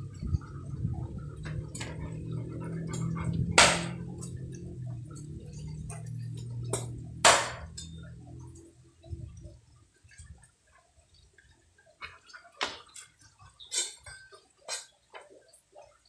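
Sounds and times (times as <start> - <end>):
steady low hum: 0.0 - 10.4
cleaver chopping sticks on wood: 3.0 - 4.4.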